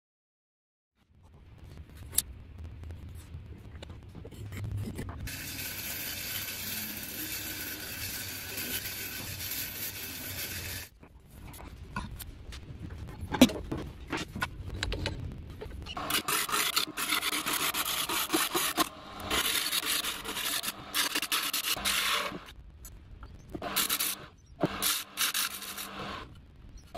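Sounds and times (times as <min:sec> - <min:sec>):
gouge scraping wood on lathe: 0:05.3 - 0:10.9, 0:16.0 - 0:22.5, 0:23.6 - 0:26.3
workshop tool hissing: 0:05.3 - 0:10.9, 0:16.0 - 0:22.5, 0:23.6 - 0:26.3.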